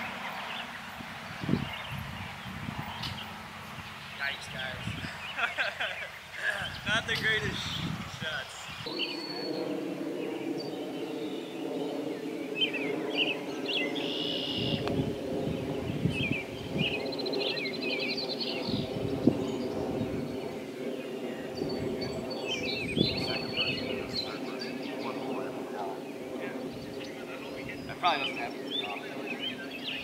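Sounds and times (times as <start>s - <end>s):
songbirds chirping and trilling: 0.0s - 30.0s
steady low hum: 0.0s - 30.0s.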